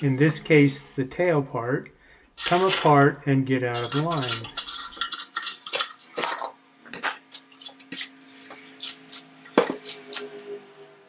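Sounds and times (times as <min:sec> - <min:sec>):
metal parts clinking and knocking: 0:02.4 - 0:03.1, 0:03.7 - 0:07.2.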